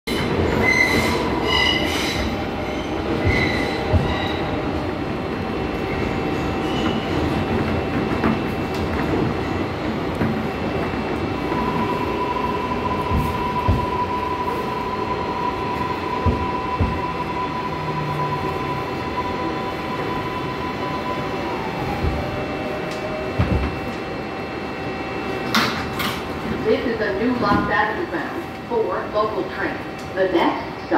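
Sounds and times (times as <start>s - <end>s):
wheels squealing on rails: 0.1s - 4.5s
train doors sliding open: 0.1s - 24.3s, 25.2s - 28.7s
subway train running: 0.1s - 30.9s.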